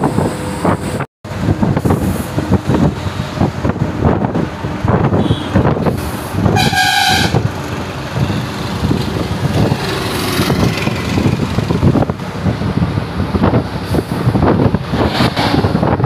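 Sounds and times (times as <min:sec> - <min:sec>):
road noise from moving vehicle: 0:00.0 - 0:16.0
wind buffeting microphone: 0:00.0 - 0:16.0
vehicle horn toot: 0:05.1 - 0:05.7, 0:06.6 - 0:07.4.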